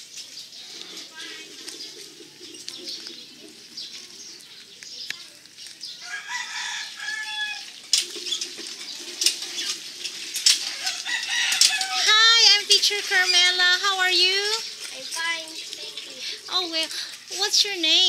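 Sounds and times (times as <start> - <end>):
chickens clucking: 0.4 - 17.4
rooster crowing: 6.0 - 7.8, 10.6 - 12.5.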